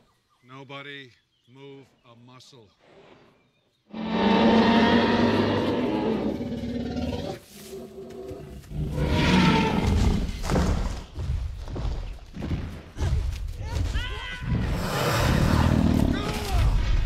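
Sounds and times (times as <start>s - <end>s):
dinosaur roar: 3.9s - 7.4s, 8.8s - 10.3s, 14.6s - 16.3s.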